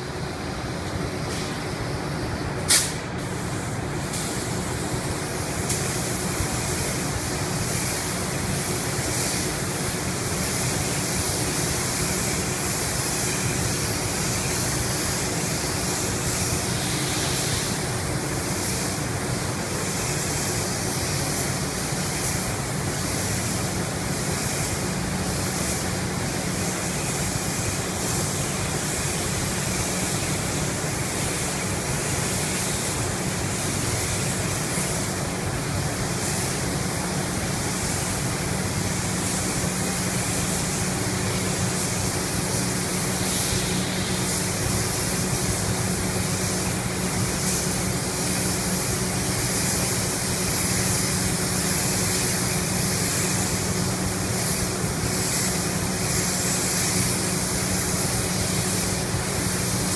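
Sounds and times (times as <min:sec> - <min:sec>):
spray gun hissing: 0:00.3 - 0:59.9.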